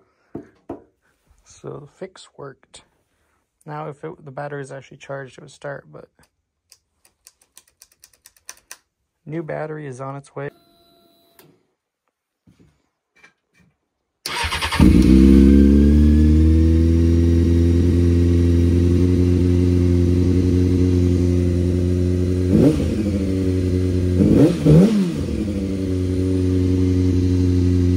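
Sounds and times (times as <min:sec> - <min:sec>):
motorcycle engine starting and idling: 0:14.3 - 0:27.9.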